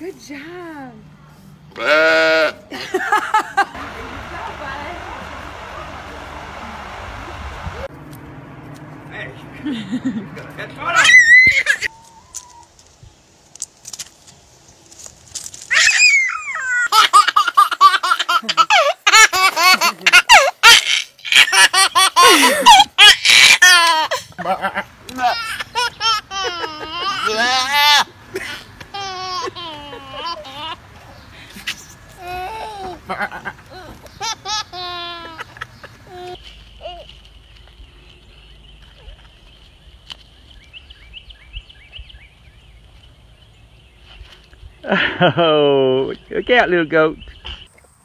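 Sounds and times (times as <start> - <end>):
low rumble: 3.5 - 10.9
high-pitched hum: 3.6 - 10.8
baby laughing: 16.4 - 37.1.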